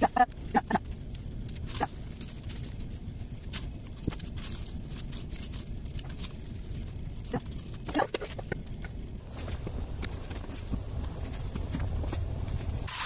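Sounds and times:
low hum: 0.0 - 13.0
spinach rustling in glass bowl: 1.6 - 7.9.

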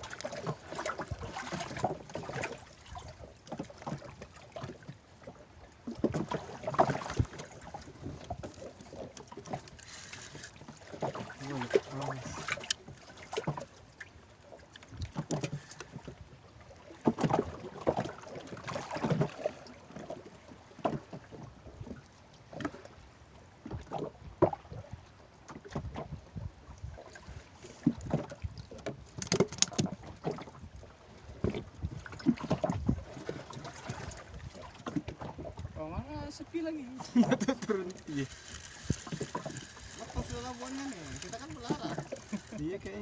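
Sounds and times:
water slapping against boat hull: 0.0 - 22.9, 23.6 - 43.0
wind on microphone: 25.8 - 27.0, 30.6 - 33.2.

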